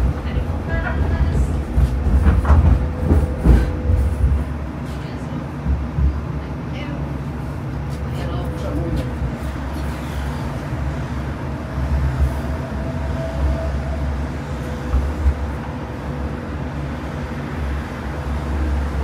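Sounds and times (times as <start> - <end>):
tram rumbling: 0.0 - 19.0.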